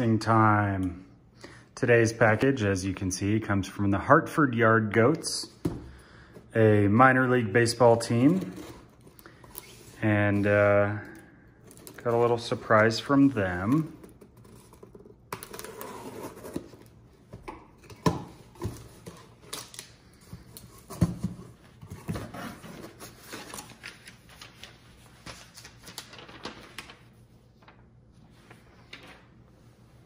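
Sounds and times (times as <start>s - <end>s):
paper rustling: 18.5s - 29.8s.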